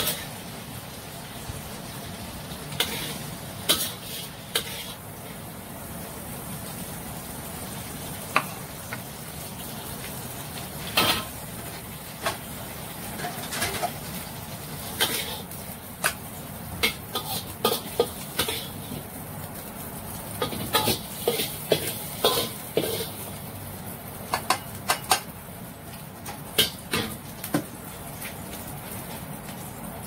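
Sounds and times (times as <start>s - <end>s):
metal spatula scraping a wok: 0.0s - 0.4s, 2.7s - 5.4s, 10.8s - 11.4s, 14.8s - 16.2s, 16.8s - 19.0s, 20.4s - 23.3s.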